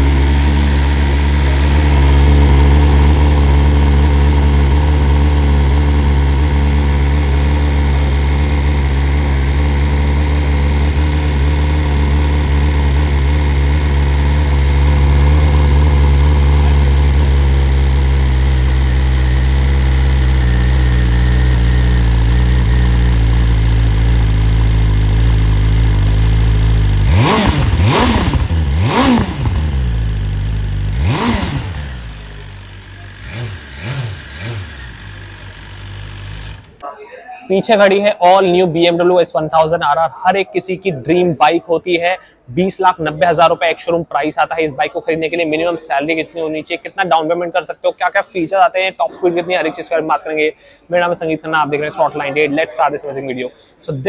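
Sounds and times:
motorcycle engine idling and revving: 0.0s - 36.8s.

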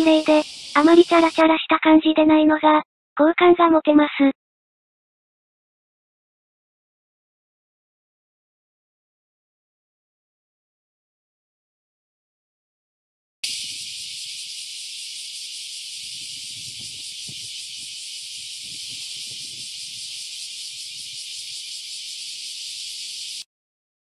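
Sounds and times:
cicadas buzzing: 0.0s - 1.6s, 13.4s - 23.4s.

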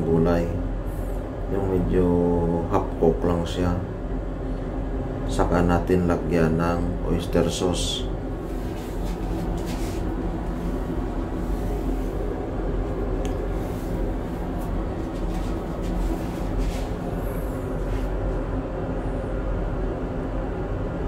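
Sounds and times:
low rumble: 7.0s - 20.9s.

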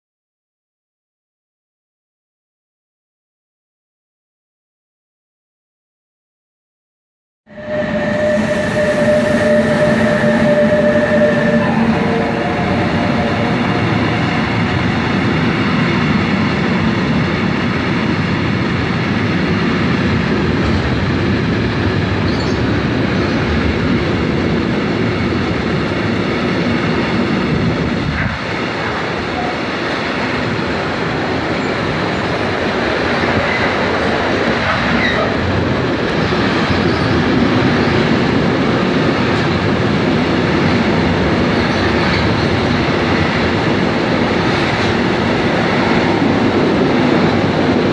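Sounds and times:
freight train wheels rumbling on rail: 7.5s - 47.9s.

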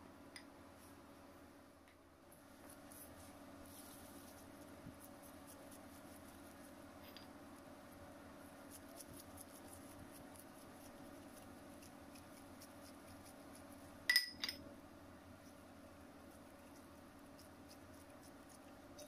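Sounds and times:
low steady hum: 0.0s - 19.0s
gloved hands squishing dough: 2.4s - 14.0s.

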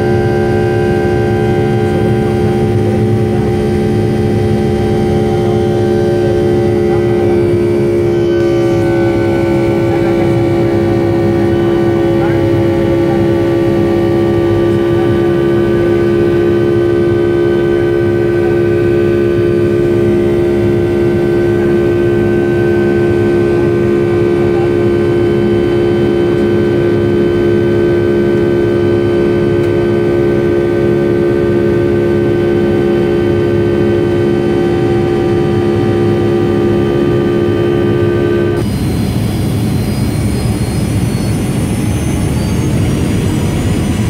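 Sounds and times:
jet engine drone in cabin: 0.0s - 44.0s
whining engine tones: 0.0s - 44.0s.

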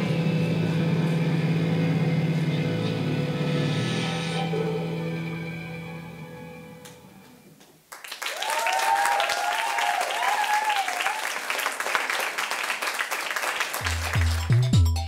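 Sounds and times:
audience applauding: 7.9s - 14.8s
people whooping and cheering: 8.2s - 12.3s.

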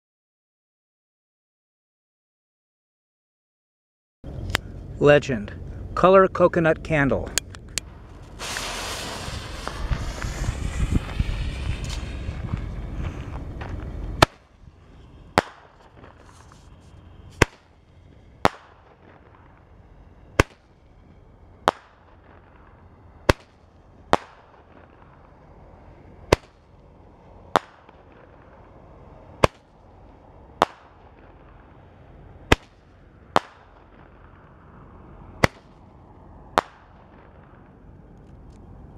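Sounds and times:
roman candle firework pops: 8.2s - 12.7s, 15.4s - 16.6s, 17.4s - 17.7s, 18.4s - 19.5s, 21.7s - 22.5s, 23.3s - 25.2s, 29.4s - 29.7s, 32.5s - 32.8s, 35.4s - 35.7s.

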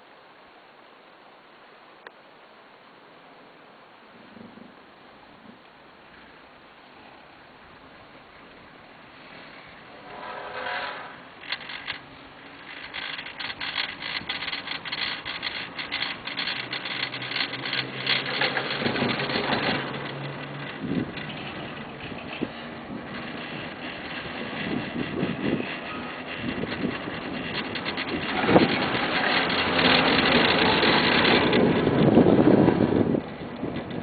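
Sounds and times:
chairlift rope clicking and clacking: 10.8s - 34.0s
wind on microphone: 18.6s - 34.0s.

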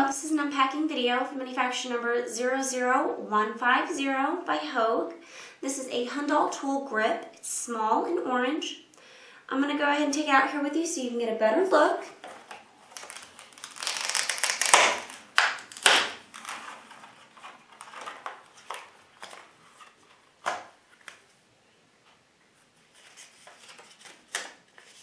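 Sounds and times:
stiff plastic crinkling: 12.2s - 21.2s
sharp plastic cracks: 12.5s - 17.0s, 20.4s - 21.2s.

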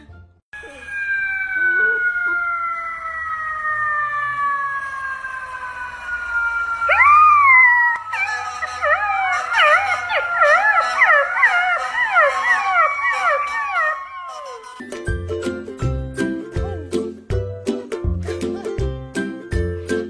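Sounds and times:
puppy howling: 0.6s - 14.8s.

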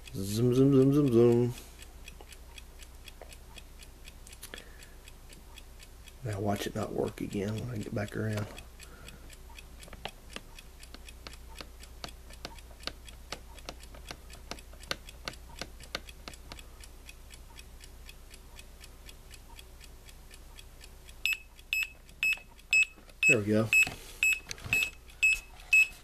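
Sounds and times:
faint clock ticking: 0.0s - 26.0s
high alarm beep: 21.3s - 26.0s.

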